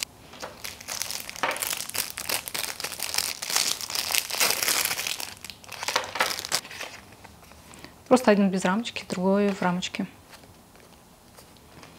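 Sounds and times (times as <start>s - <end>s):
packaging crinkling: 0.0s - 7.6s.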